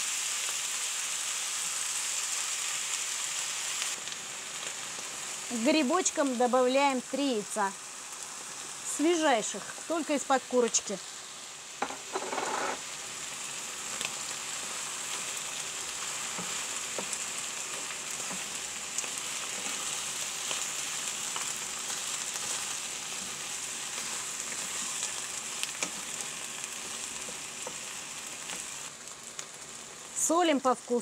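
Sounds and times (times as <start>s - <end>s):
food sizzling in a frying pan: 0.0s - 31.0s
wooden spatula stirring: 14.6s - 28.7s.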